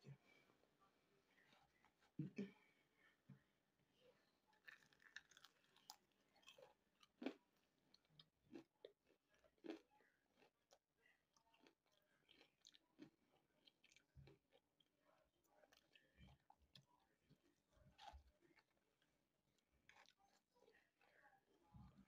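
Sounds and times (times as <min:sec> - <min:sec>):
person chewing fried chicken: 0:04.5 - 0:21.4.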